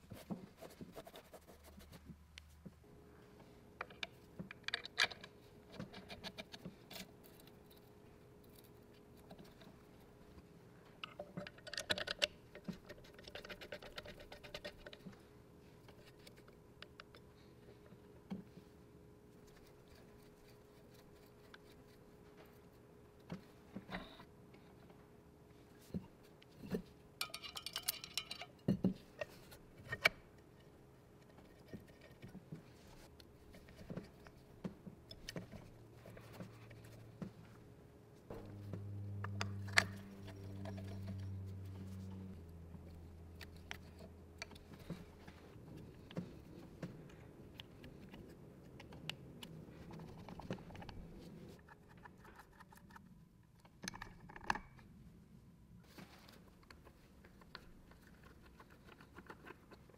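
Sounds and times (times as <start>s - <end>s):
low steady hum: 0.0s - 59.9s
small parts clicking and tapping: 3.8s - 9.8s, 10.9s - 15.2s, 25.9s - 30.2s, 51.6s - 54.9s.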